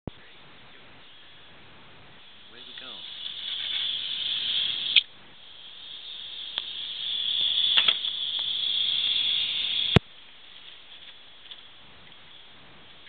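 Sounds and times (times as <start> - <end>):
airbrush hissing: 2.2 - 10.0.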